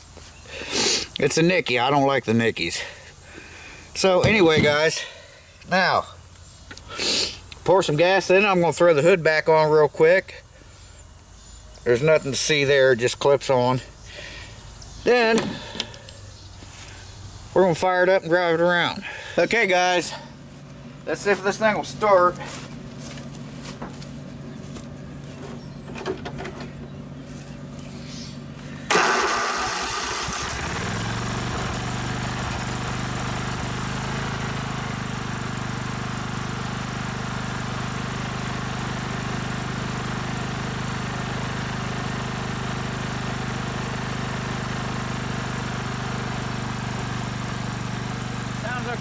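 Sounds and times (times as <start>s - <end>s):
mower engine starting and running: 0.4s - 6.1s, 14.1s - 16.9s, 17.8s - 49.0s.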